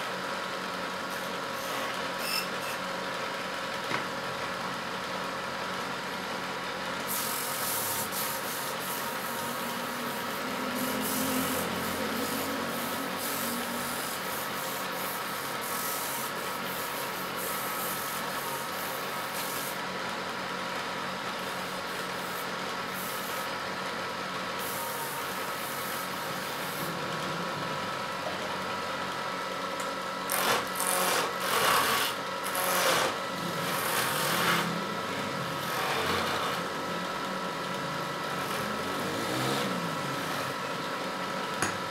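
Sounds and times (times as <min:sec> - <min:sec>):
turning tool cutting wood: 0:30.3 - 0:34.8, 0:35.5 - 0:36.8
wood lathe humming: 0:30.3 - 0:40.7.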